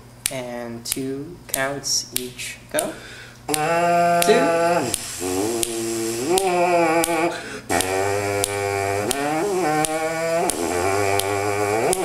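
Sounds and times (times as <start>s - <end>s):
trombone mouthpiece buzzing: 3.5s - 12.0s
finger snaps: 4.2s - 12.0s.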